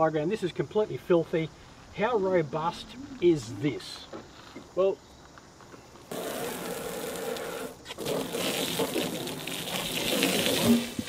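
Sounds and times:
hose water spraying and splashing: 0:06.1 - 0:11.0.

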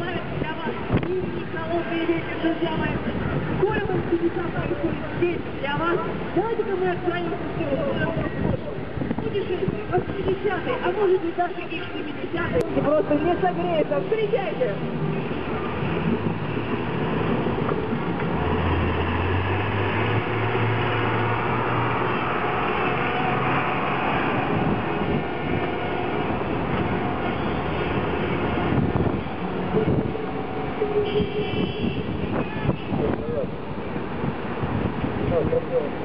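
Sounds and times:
street traffic rumble: 0:00.0 - 0:36.0
engine hum: 0:11.6 - 0:36.0.

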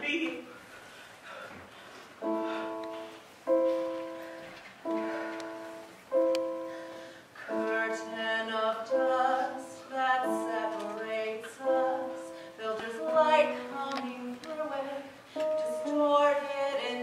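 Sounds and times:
piano chords ringing: 0:02.2 - 0:17.0
woman singing: 0:07.5 - 0:17.0.

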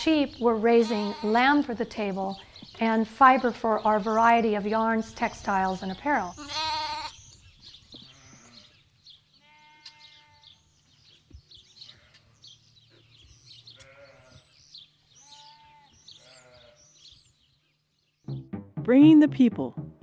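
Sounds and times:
sheep bleating: 0:00.8 - 0:01.5, 0:06.3 - 0:07.2, 0:09.4 - 0:10.6, 0:13.8 - 0:14.5, 0:15.2 - 0:16.9.

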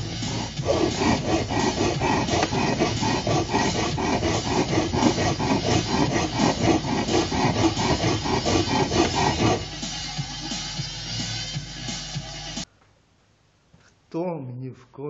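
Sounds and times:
hand file stroking metal: 0:00.0 - 0:10.0.

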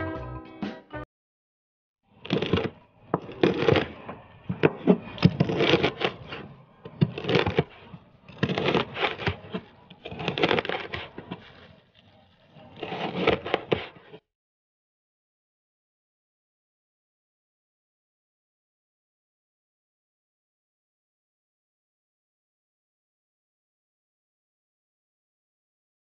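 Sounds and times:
knife chopping on plastic board: 0:02.2 - 0:11.6, 0:12.8 - 0:14.2
knife scraping board: 0:02.2 - 0:14.2.

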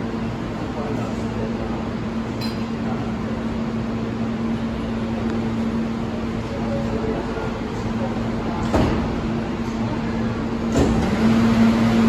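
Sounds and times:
subway train equipment humming: 0:00.0 - 0:12.0.

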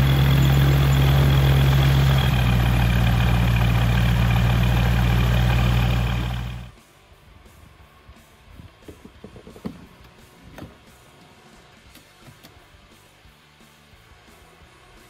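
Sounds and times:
aircraft engine idling: 0:00.0 - 0:06.7.

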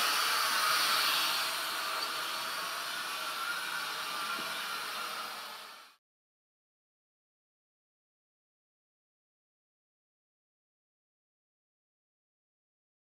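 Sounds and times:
drone propellers whirring: 0:00.0 - 0:06.0.

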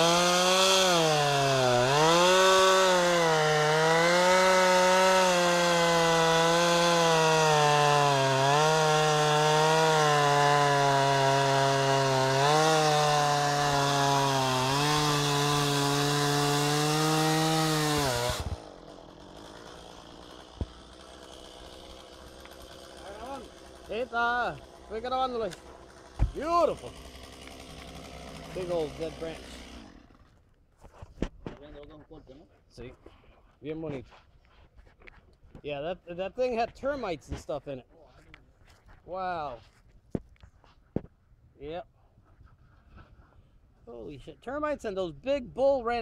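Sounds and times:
chainsaw cutting wood: 0:00.0 - 0:30.5.

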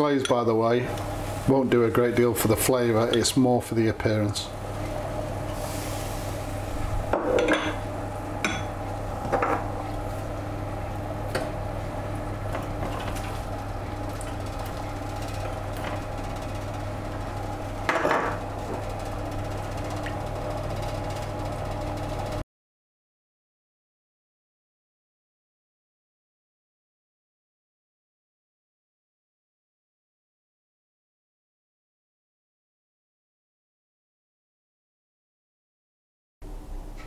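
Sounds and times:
steady background hum: 0:00.0 - 0:22.4.

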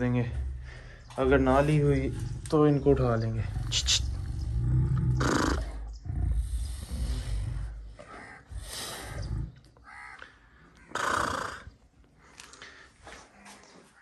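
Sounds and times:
lioness growling and snarling: 0:00.0 - 0:09.8, 0:10.9 - 0:11.8.

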